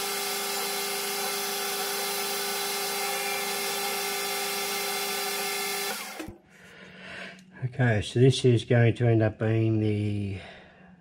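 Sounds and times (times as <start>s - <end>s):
metal lathe whining: 0.0s - 6.3s
spindle winding down: 0.0s - 6.3s.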